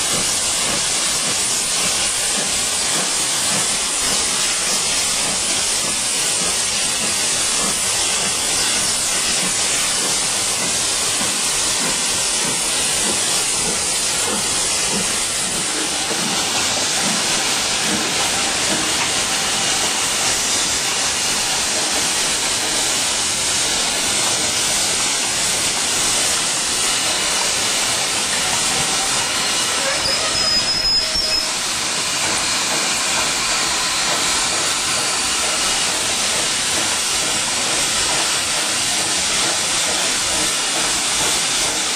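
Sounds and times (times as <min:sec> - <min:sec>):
loud hiss of escaping steam: 0:00.0 - 0:41.9
steam locomotives moving slowly: 0:00.0 - 0:41.9
short high squeal: 0:29.5 - 0:31.6.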